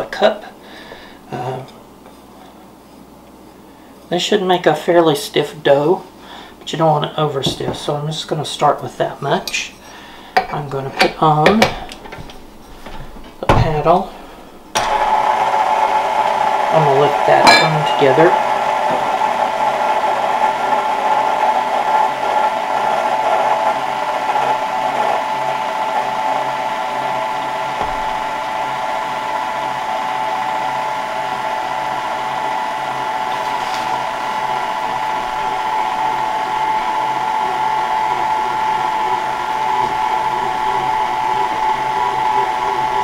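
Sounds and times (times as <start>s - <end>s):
stand mixer motor whine: 14.7s - 43.0s.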